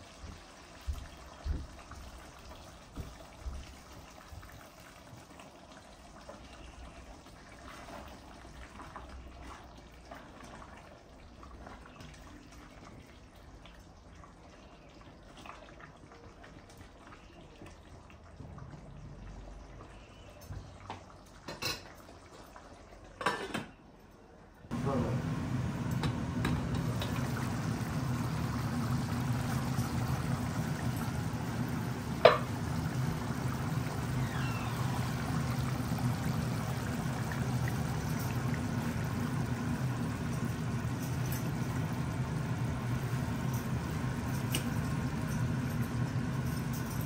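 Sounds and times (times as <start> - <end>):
curry bubbling in a pot: 0.0 - 23.1, 24.7 - 46.4
gas burner noise: 24.7 - 47.0.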